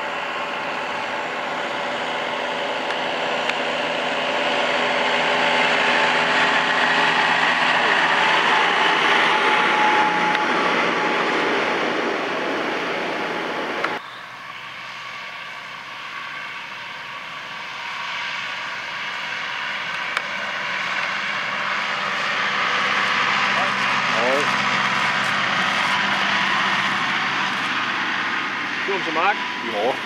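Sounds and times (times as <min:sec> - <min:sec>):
tractor engine driving past: 0:00.0 - 0:14.0, 0:14.6 - 0:30.0
distant tractor approaching: 0:00.0 - 0:30.0.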